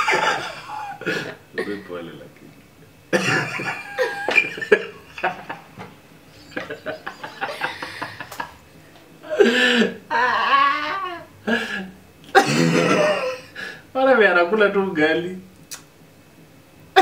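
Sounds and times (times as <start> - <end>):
people laughing: 0.0 - 1.9, 3.2 - 8.6.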